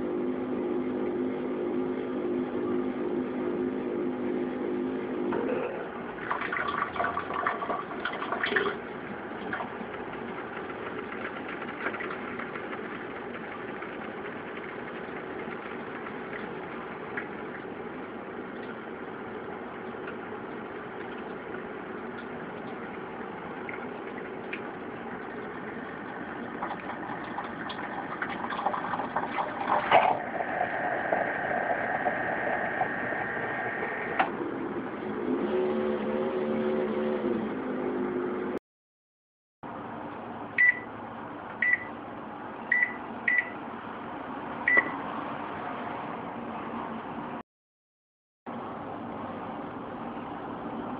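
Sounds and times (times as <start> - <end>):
coffee brewer pump humming: 0.0 - 34.4.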